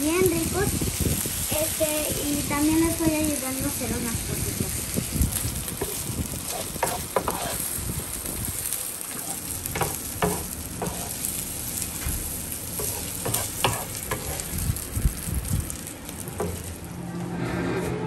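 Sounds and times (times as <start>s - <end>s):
meat sizzling on a griddle: 0.0s - 16.9s
wooden spatula scraping: 5.7s - 7.8s, 9.1s - 11.2s, 12.8s - 14.6s.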